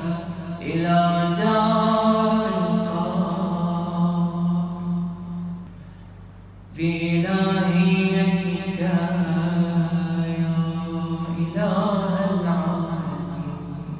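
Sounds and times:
man chanting melodically: 0:00.0 - 0:05.6, 0:06.8 - 0:13.9.

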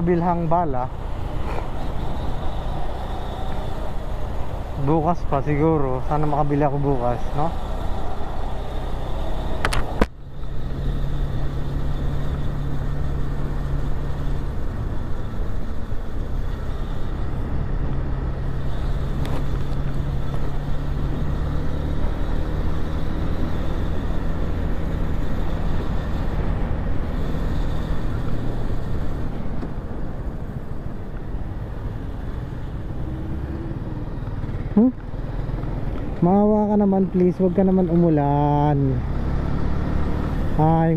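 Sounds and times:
motorcycle engine running: 0:00.0 - 0:40.9
wind and road noise: 0:00.0 - 0:40.9.

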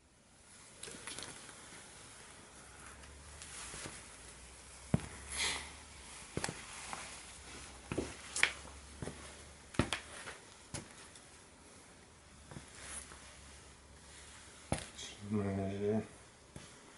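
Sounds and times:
footsteps on stone tiles: 0:06.3 - 0:11.2.

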